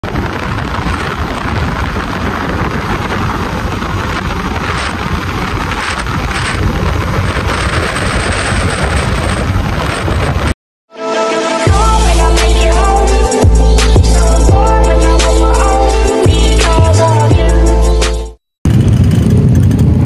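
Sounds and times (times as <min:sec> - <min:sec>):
wind buffeting microphone: 0:00.0 - 0:10.6, 0:18.7 - 0:20.0.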